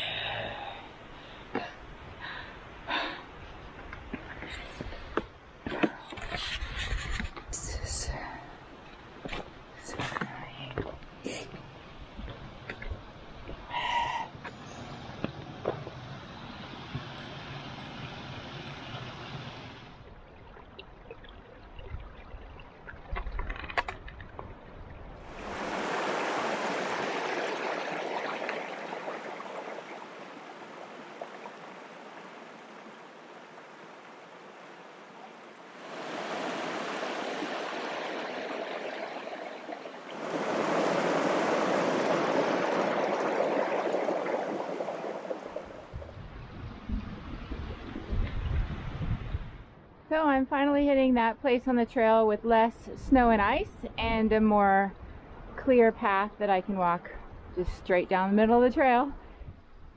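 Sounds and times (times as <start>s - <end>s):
stream water rushing: 25.1s - 46.2s.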